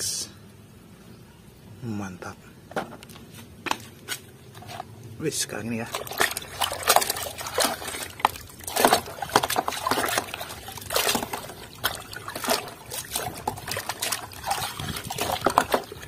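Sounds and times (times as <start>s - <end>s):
water sloshing in a tub: 3.8s - 16.0s.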